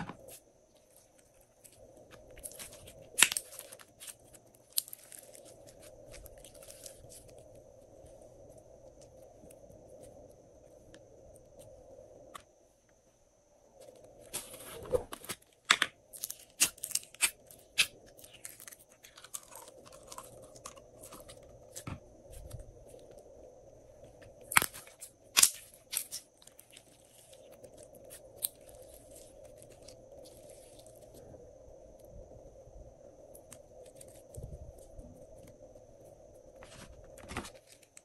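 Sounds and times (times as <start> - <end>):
sticky slime crackle: 0.3 - 7.6, 15.7 - 22.6, 24.4 - 31.2.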